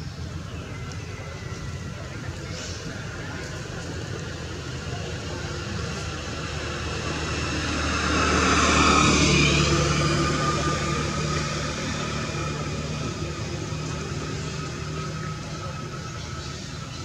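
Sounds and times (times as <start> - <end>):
motor vehicle passing: 4.5 - 17.0.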